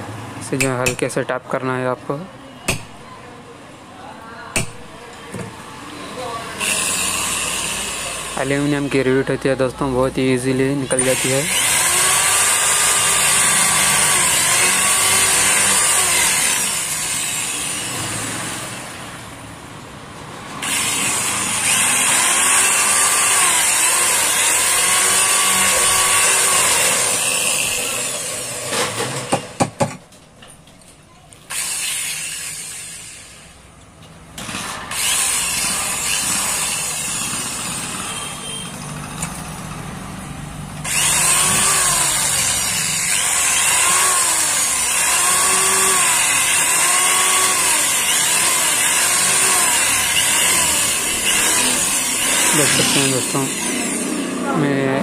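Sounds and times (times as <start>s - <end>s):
electric drill drilling metal: 6.6s - 9.2s, 10.6s - 18.8s, 20.6s - 29.4s, 31.5s - 33.6s, 34.4s - 38.2s, 40.8s - 54.4s.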